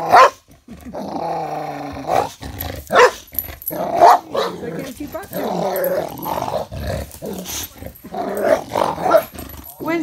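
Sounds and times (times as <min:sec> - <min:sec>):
dog barking: 0:00.0 - 0:00.4, 0:02.9 - 0:03.3, 0:04.0 - 0:04.8
dog growling: 0:00.0 - 0:10.0.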